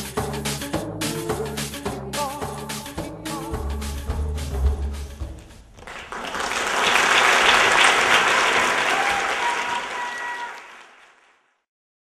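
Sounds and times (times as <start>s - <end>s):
audience applauding: 5.7s - 11.6s.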